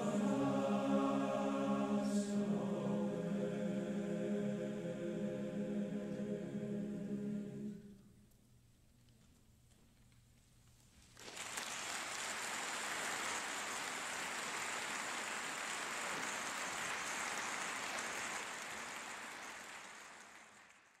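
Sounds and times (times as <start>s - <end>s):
large audience applauding: 11.2s - 21.0s.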